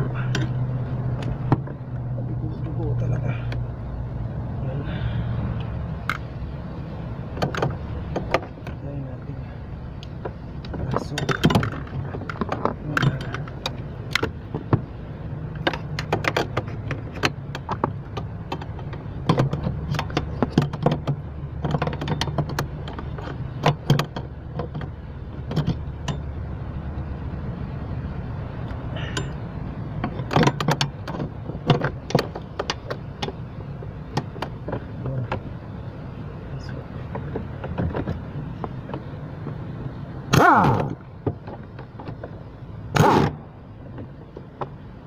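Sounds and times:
ratchet metallic clicks and clanks: 10.0 - 14.8, 15.5 - 26.4, 28.6 - 35.6.

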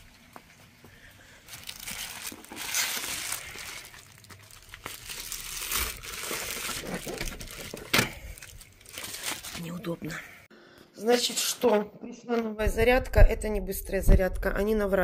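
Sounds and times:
plastic envelopes crinkling: 0.1 - 10.2.

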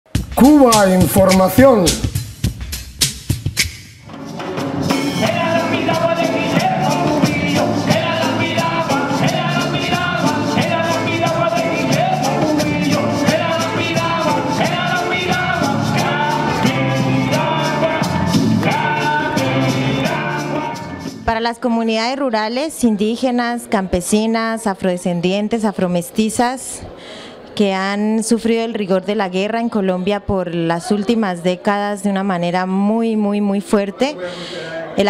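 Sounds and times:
steady drum beat: 0.1 - 20.6
music with singing: 0.2 - 21.3.

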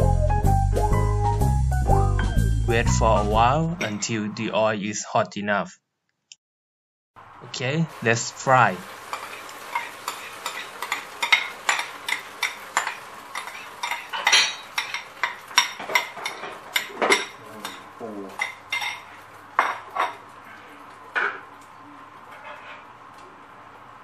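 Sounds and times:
utensil clinking against dishware: 9.1 - 19.0.

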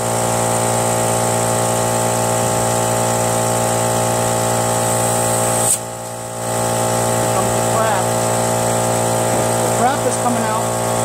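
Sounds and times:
air compressor motor running: 0.0 - 11.0
compressed air hissing: 3.7 - 11.0.

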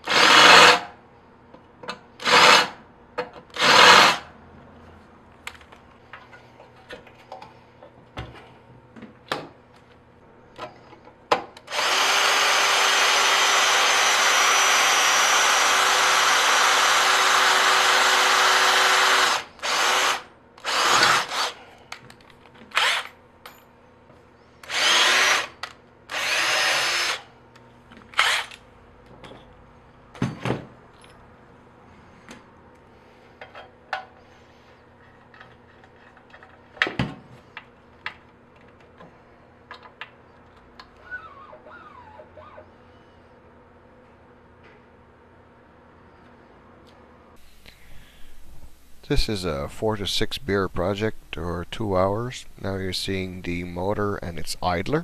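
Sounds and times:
electric drill running: 0.0 - 0.9, 2.2 - 2.8, 3.6 - 4.2, 11.7 - 21.6, 22.7 - 23.1, 24.6 - 27.3, 28.1 - 28.6.

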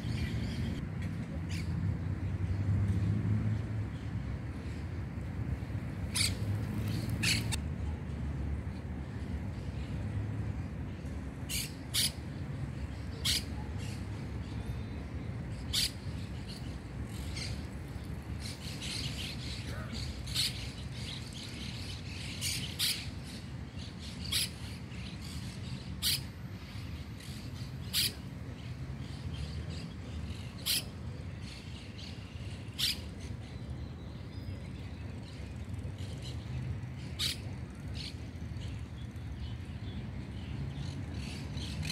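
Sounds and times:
birds chirping: 3.9 - 7.6.

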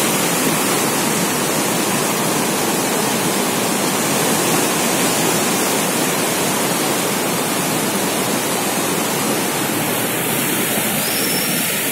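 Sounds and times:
river rapids rushing: 0.0 - 11.9.

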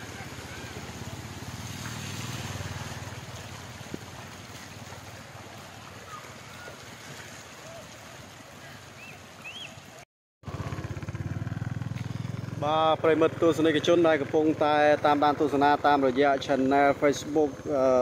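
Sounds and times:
water washing around wheels: 0.0 - 18.0
small motorcycle engine: 10.4 - 16.1.

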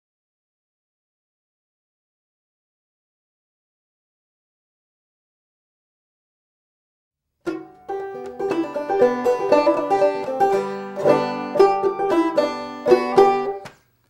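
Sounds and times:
banjo playing old-time tune: 7.4 - 13.7.

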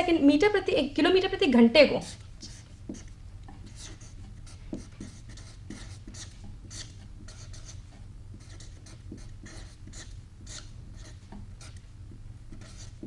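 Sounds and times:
low steady hum: 0.0 - 13.0
marker pen writing on paper: 2.0 - 11.9, 12.5 - 13.0.

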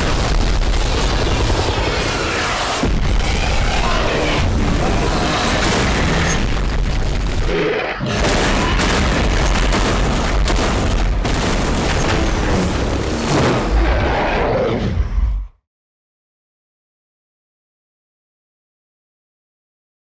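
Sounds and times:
deep booms and explosions: 0.0 - 15.6
dramatic music: 11.6 - 14.1.

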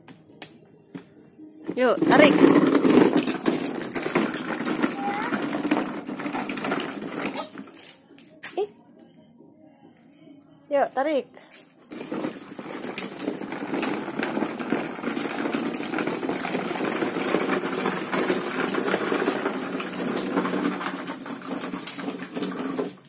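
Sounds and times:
toy truck wheels rattling on dirt: 1.7 - 8.0, 11.9 - 23.0.

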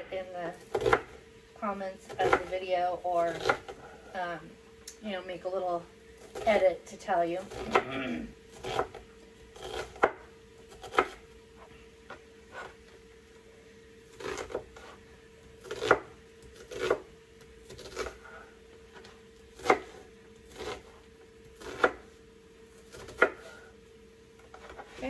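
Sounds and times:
knife chopping on wooden board: 0.7 - 1.2, 2.1 - 2.5, 3.3 - 3.8, 8.6 - 9.0, 9.6 - 11.2, 15.6 - 17.0, 17.7 - 18.2, 18.9 - 21.0, 21.6 - 22.1, 22.9 - 23.5.

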